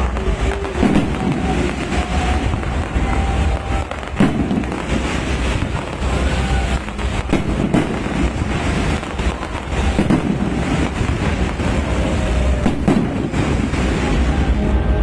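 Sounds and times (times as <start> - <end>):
fireworks bangs and crackling: 0.0 - 15.0.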